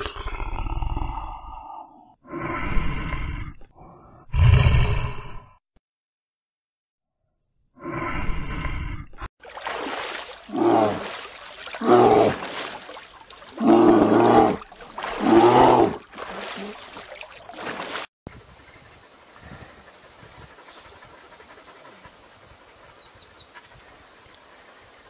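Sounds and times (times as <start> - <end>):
water trickling and splashing: 9.4 - 18.1.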